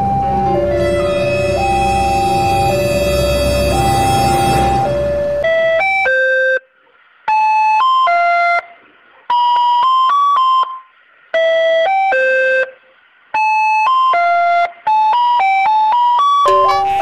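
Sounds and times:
electronic chiming jingle: 0:16.4 - 0:17.0.

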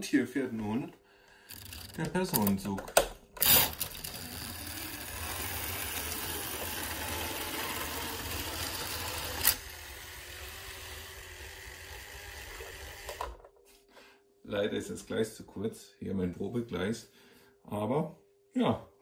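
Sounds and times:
model train whirring on track: 0:03.7 - 0:13.4.

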